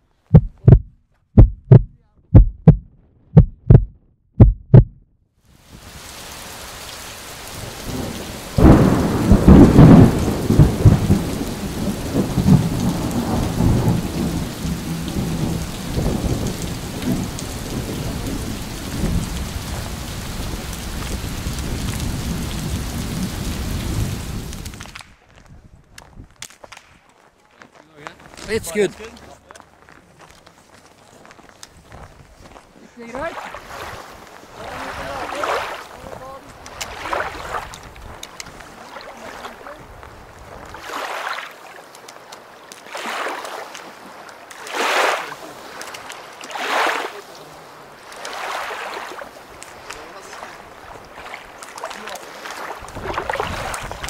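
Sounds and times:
short thumps: 0:00.3 - 0:05.1
wind buffeting microphone: 0:07.5 - 0:26.4, 0:31.7 - 0:32.6, 0:33.6 - 0:38.8, 0:39.6 - 0:40.8, 0:52.7 - 0:54.0.

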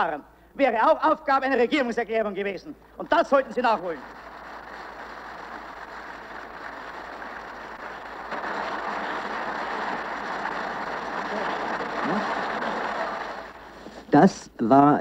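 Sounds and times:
crowd applauding: 0:03.0 - 0:14.1.

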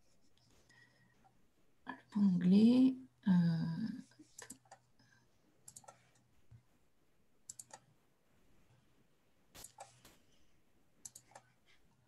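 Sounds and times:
computer mouse clicking: 0:04.2 - 0:04.9, 0:05.6 - 0:06.3, 0:07.4 - 0:08.0, 0:09.6 - 0:10.2, 0:11.0 - 0:11.6.

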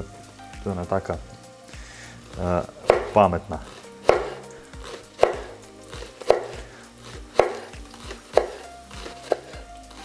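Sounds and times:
knife chopping on wooden board: 0:02.8 - 0:09.7.

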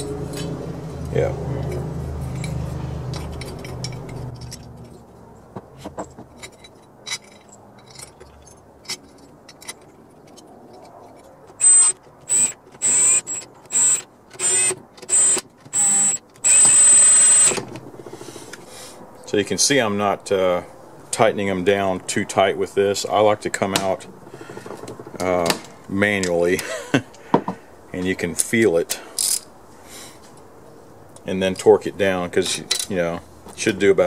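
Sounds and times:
bolts and washers clicking: 0:01.6 - 0:05.0, 0:32.4 - 0:33.0
cordless drill whining: 0:11.6 - 0:18.5.

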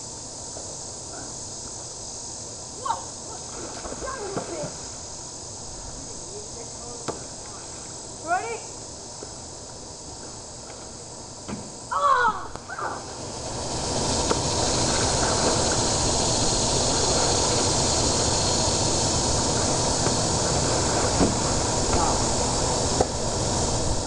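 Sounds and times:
steady hiss: 0:00.0 - 0:24.0
person yelling: 0:11.9 - 0:13.0.

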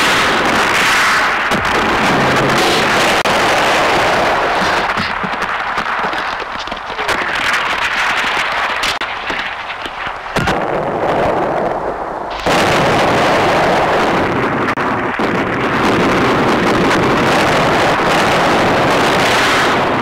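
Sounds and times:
gunshots: 0:00.0 - 0:06.3, 0:07.0 - 0:11.6, 0:12.3 - 0:14.5
explosions: 0:00.0 - 0:20.0
steady rushing noise: 0:00.0 - 0:20.0.

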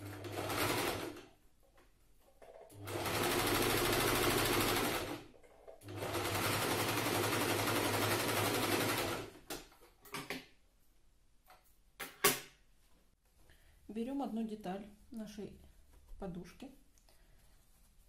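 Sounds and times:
sewing machine stitching: 0:00.0 - 0:01.3, 0:02.7 - 0:09.4.

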